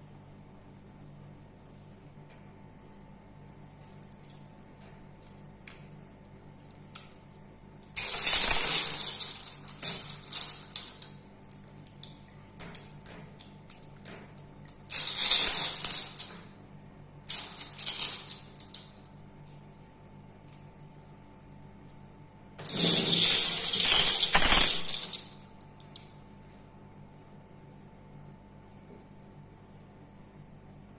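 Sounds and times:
glass marbles clattering: 8.0 - 11.2, 14.9 - 16.5, 17.3 - 19.1, 22.6 - 25.4.

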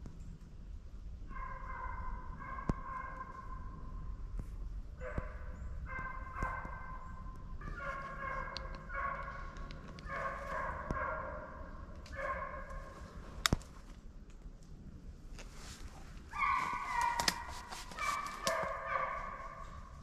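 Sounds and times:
hounds baying: 7.6 - 13.0, 16.3 - 20.0.

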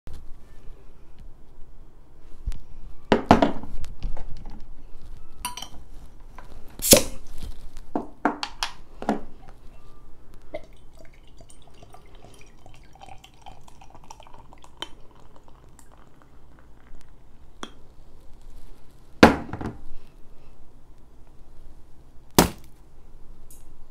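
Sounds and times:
bottle and glass clinking: 5.4 - 5.8, 10.6 - 16.3
beer pouring and fizzing: 10.5 - 17.5.

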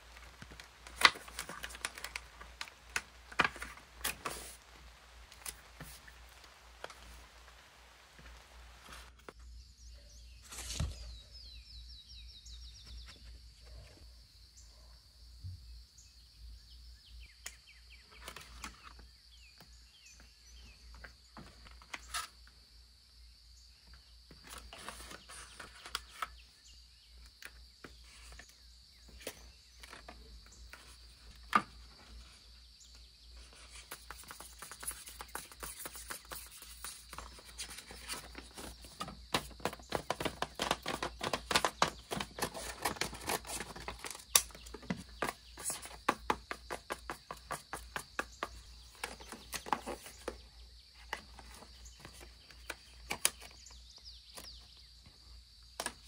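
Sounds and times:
paper rustling: 0.0 - 9.3, 24.4 - 26.4, 33.4 - 48.3, 48.9 - 50.4
binder pages turning: 0.0 - 9.4, 24.4 - 26.4, 33.4 - 50.4, 51.0 - 53.7.

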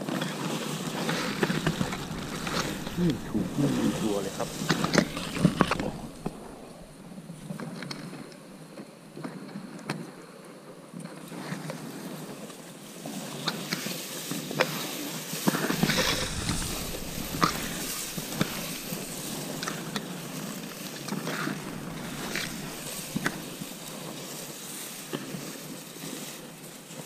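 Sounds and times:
grass and brush rustling: 0.9 - 7.6, 15.7 - 20.2, 21.3 - 25.0
low rumble: 0.9 - 8.4, 15.6 - 20.6, 21.4 - 24.6.

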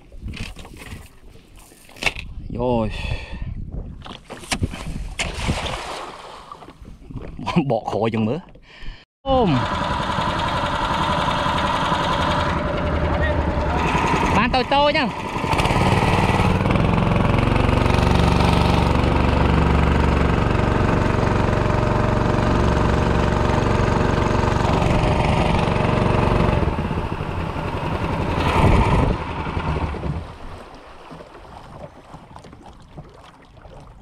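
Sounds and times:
water rushing past hull: 4.9 - 7.3, 9.7 - 34.0
outboard boat motor running: 9.3 - 34.0.

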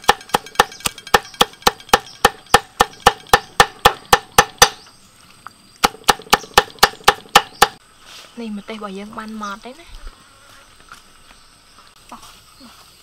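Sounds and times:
cleaver chopping on wooden board: 0.0 - 4.8, 5.8 - 7.8.

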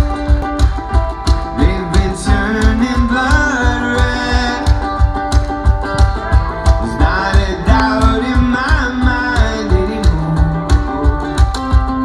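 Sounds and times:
fast kick-drum beat: 0.0 - 12.0
strummed guitars: 0.0 - 12.0
upright bass: 0.0 - 12.0
person singing: 1.4 - 5.1, 5.9 - 11.6.

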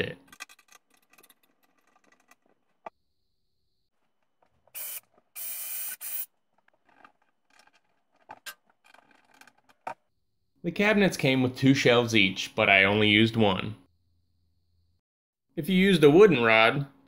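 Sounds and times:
cordless drill drilling: 4.8 - 6.3.

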